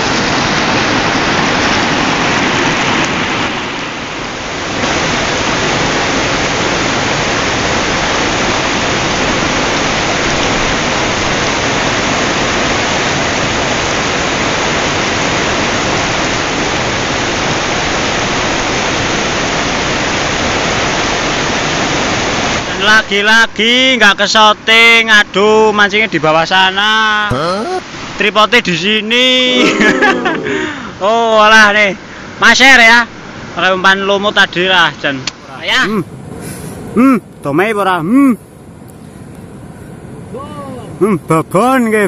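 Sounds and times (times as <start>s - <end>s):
river rapids rushing: 0.0s - 22.8s.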